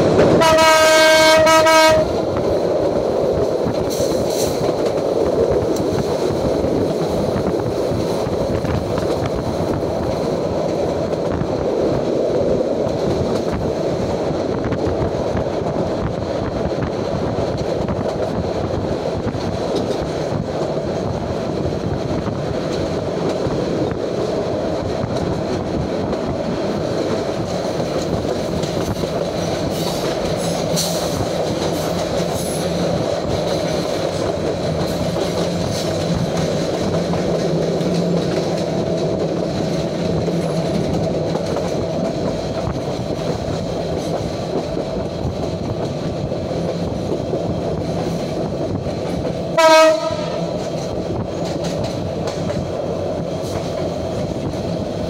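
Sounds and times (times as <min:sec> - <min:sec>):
train wheels rumbling on rails: 0:00.0 - 0:55.0
train horn blast: 0:00.3 - 0:02.2, 0:49.6 - 0:50.6.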